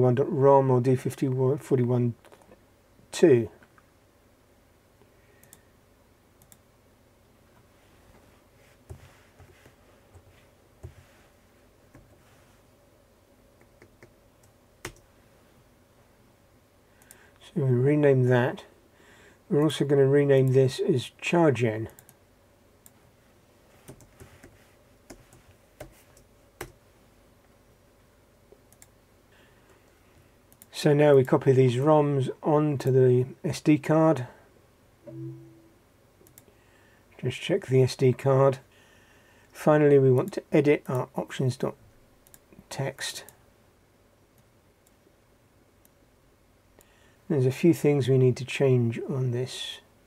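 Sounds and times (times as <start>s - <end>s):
computer mouse clicks: 5.4s - 5.6s, 6.4s - 6.6s, 13.6s - 15.0s, 28.6s - 28.9s, 36.2s - 36.5s, 42.2s - 42.4s.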